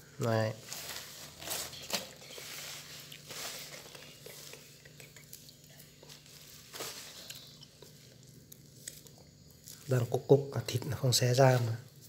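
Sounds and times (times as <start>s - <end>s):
leaves rustling and crackling: 0.4s - 10.2s.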